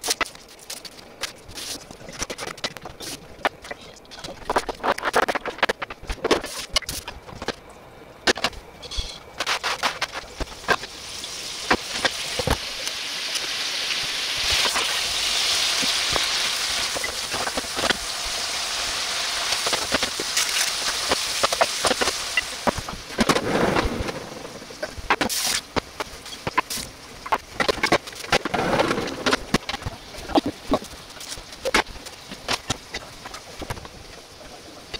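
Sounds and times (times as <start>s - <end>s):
onions sizzling in oil: 8.8s - 33.7s.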